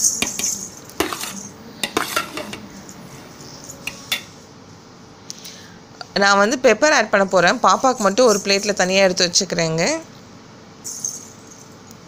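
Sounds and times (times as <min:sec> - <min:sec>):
metal ladle scraping pot: 0:00.0 - 0:04.4.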